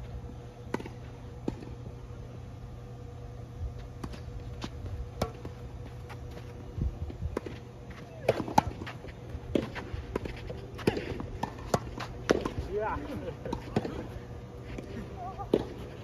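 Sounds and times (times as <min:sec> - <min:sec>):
steady low hum: 0:00.0 - 0:16.0
tennis ball struck by rackets: 0:09.5 - 0:12.7.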